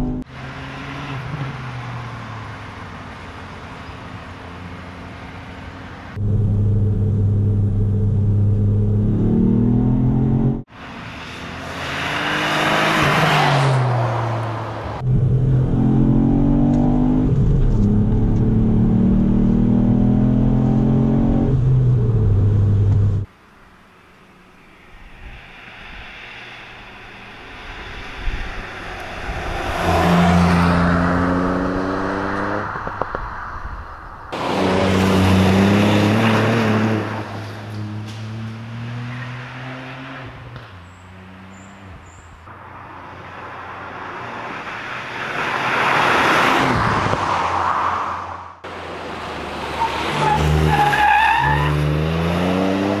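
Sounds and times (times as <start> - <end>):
car engine accelerating past: 27.5 - 33.1.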